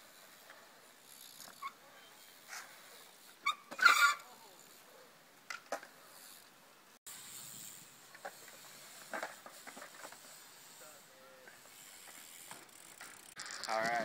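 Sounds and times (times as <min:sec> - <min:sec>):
bike tyres hissing on concrete: 0:00.0 - 0:05.1, 0:05.8 - 0:13.8
bike knocks and clicks: 0:11.9 - 0:14.0.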